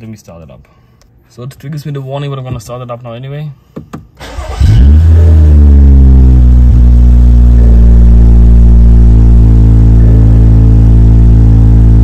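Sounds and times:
car engine starting and idling: 4.2s - 12.0s.

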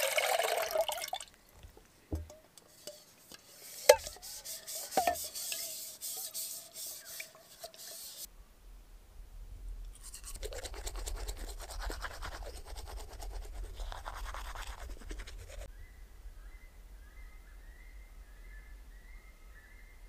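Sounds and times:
toothbrush scrubbing teeth: 10.0s - 15.7s.

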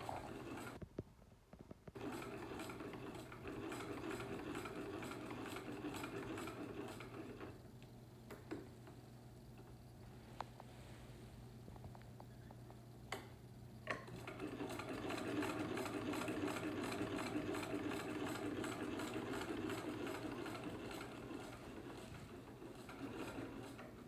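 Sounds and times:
sewing machine stitching: 0.0s - 0.8s, 1.8s - 7.6s, 13.8s - 24.0s
sewing machine clicks: 1.8s - 7.6s, 13.1s - 24.0s.

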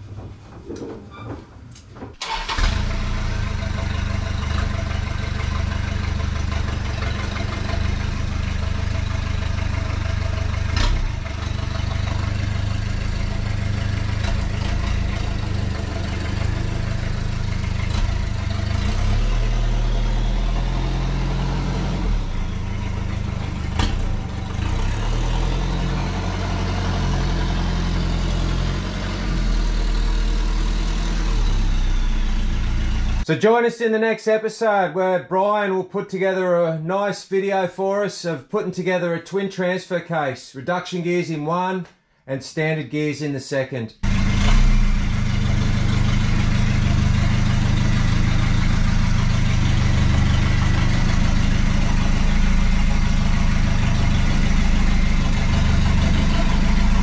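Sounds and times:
truck engine running at low revs: 2.6s - 33.3s, 44.0s - 57.0s.

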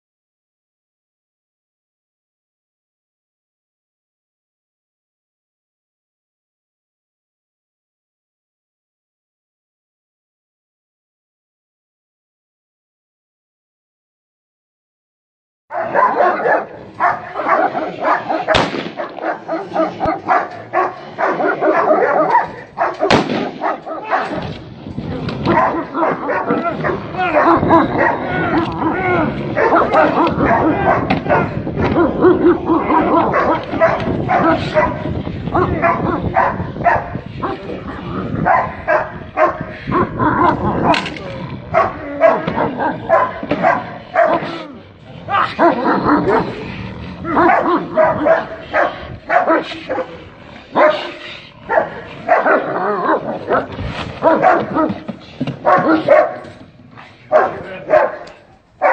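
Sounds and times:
dog barking rapidly: 15.7s - 24.4s, 25.5s - 37.6s, 38.3s - 41.0s, 41.7s - 44.7s, 45.3s - 46.6s, 47.2s - 56.6s, 57.2s - 58.9s
sharp crack: 18.4s - 20.2s, 22.3s - 25.7s.

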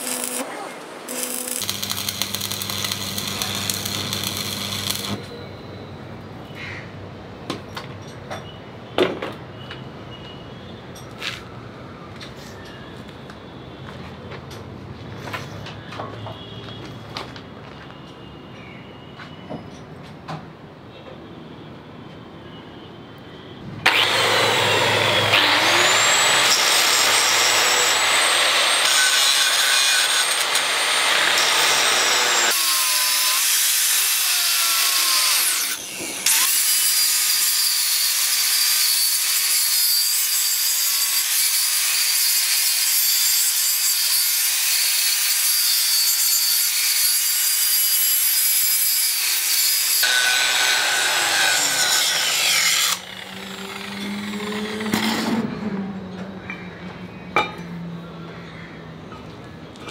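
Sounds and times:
angle grinder cutting steel: 0.0s - 5.4s, 23.8s - 55.5s.

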